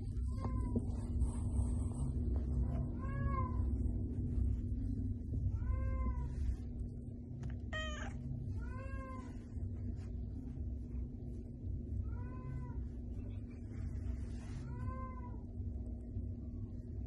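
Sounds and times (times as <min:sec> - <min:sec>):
low steady rumble: 0:00.0 - 0:17.0
cat meowing: 0:07.7 - 0:09.3.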